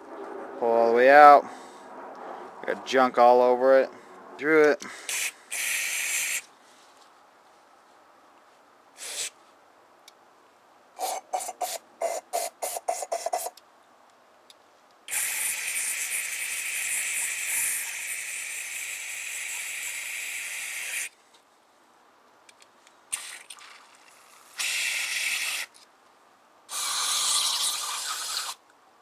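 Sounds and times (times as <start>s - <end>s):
aerosol spray hissing: 5.1s - 6.5s, 9.0s - 9.4s, 11.0s - 13.5s, 15.1s - 21.1s, 24.5s - 25.7s, 26.7s - 28.6s.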